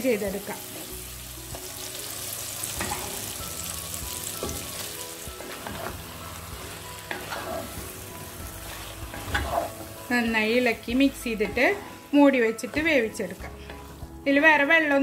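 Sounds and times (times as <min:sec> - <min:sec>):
food sizzling in oil: 0:00.0 - 0:15.0
wooden spatula scraping pot: 0:07.1 - 0:10.0.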